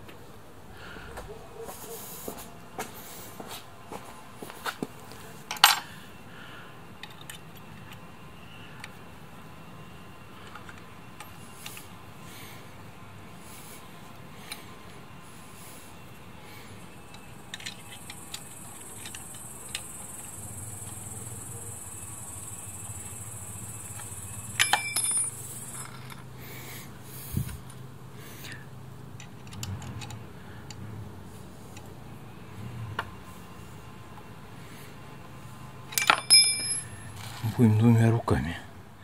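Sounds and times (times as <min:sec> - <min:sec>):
hand tools clicking on metal: 0:17.1 - 0:21.1, 0:23.9 - 0:26.3, 0:35.9 - 0:37.0
ringing metallic clink: 0:24.2 - 0:26.2, 0:35.9 - 0:37.2.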